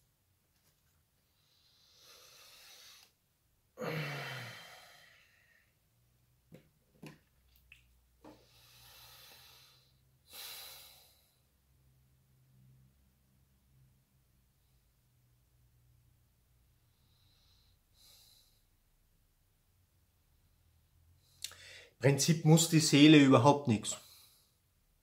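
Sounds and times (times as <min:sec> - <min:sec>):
man breathing deeply: 0:01.2 - 0:03.2, 0:03.8 - 0:05.8, 0:08.3 - 0:11.6, 0:16.8 - 0:18.8, 0:21.2 - 0:22.0
mouth clicks: 0:21.4 - 0:21.6.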